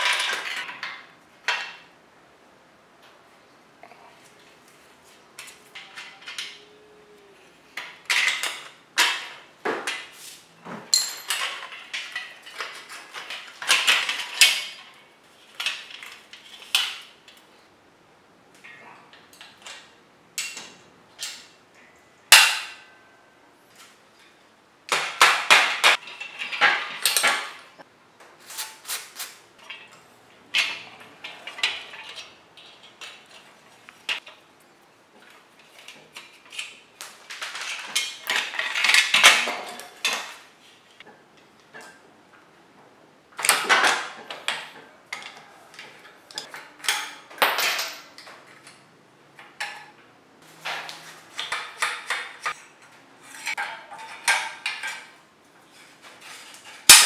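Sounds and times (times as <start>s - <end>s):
wrench clinking on metal bicycle parts: 10.9s - 15.0s.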